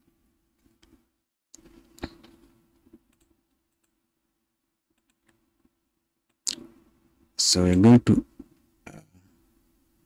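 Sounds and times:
faint steady hum: 0.0s - 10.0s
keyboard and mouse clicks: 1.6s - 4.0s, 4.9s - 6.7s.

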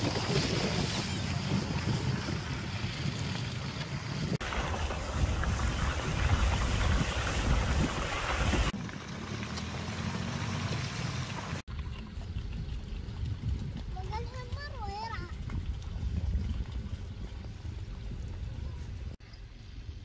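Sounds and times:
wind buffeting microphone: 0.0s - 8.8s, 11.7s - 19.2s.

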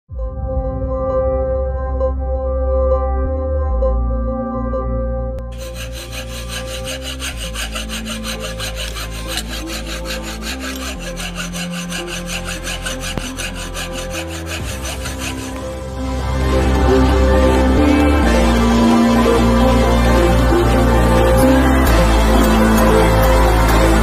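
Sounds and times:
background music: 0.1s - 24.0s
hand tool rasping bamboo: 5.5s - 16.0s.

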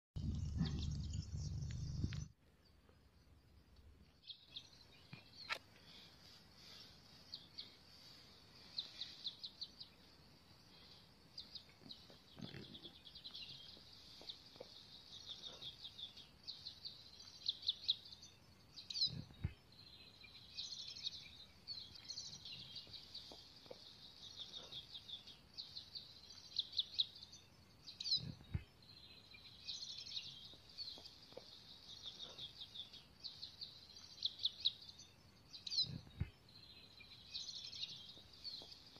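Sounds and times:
birds chirping and trilling: 0.2s - 2.3s, 4.2s - 38.9s
soft low thumps: 36.0s - 36.4s.

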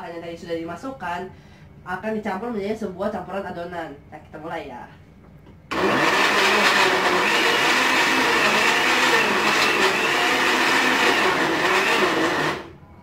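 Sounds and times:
blender running: 5.7s - 12.8s.

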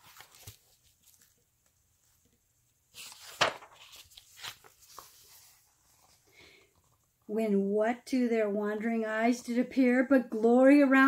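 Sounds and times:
book pages rustling: 0.0s - 7.1s
sharp paper snap: 3.0s - 4.6s.

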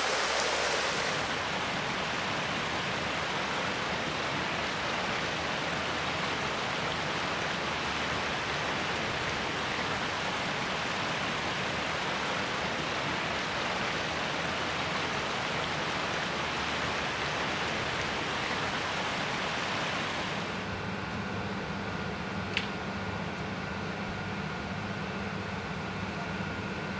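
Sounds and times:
stream water rushing: 0.0s - 20.7s.

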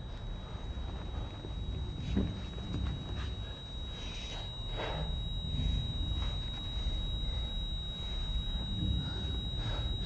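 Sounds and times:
soft breaths: 3.1s - 10.0s.

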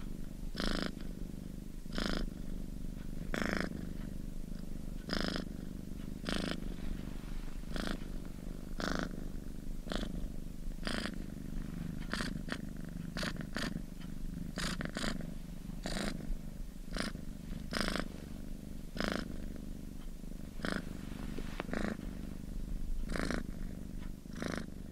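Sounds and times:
cat purring: 0.0s - 24.9s.

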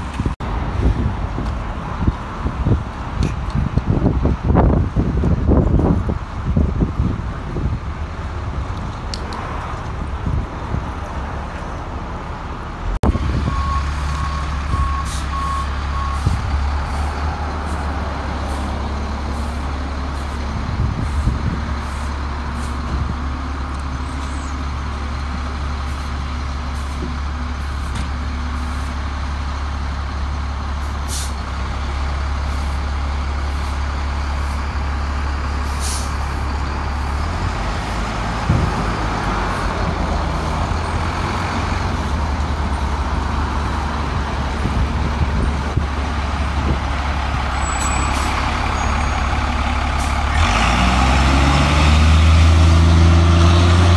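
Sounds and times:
diesel engine running: 0.0s - 53.9s
air brake hisses: 31.1s - 31.4s, 35.7s - 36.2s.

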